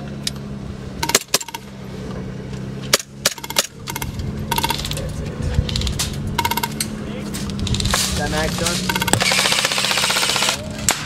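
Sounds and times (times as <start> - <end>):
low engine drone: 0.0 - 11.0
airsoft gun shots: 8.9 - 11.0.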